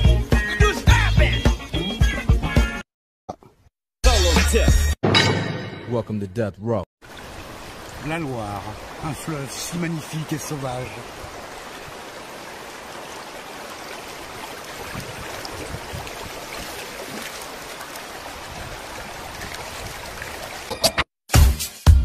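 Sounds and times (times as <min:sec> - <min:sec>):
river water rippling over stones: 0:07.0 - 0:20.7.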